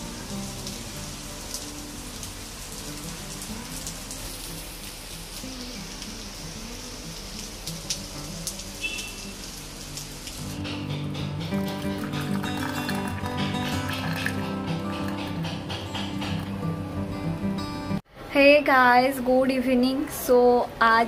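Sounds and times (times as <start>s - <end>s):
rain falling steadily: 0.0s - 13.9s
sharp raindrop hits: 7.2s - 15.4s.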